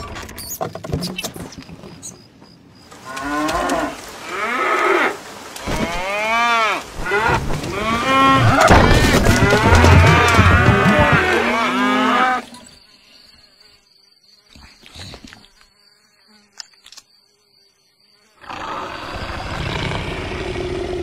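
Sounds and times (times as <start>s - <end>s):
cows mooing: 3.1s - 12.5s.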